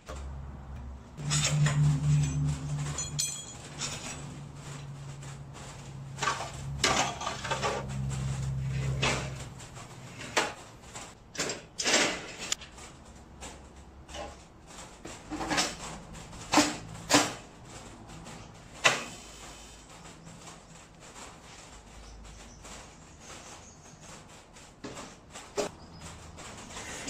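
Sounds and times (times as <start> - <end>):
metal drawer slides rasping: 1.2 - 12.6, 15.2 - 17.5.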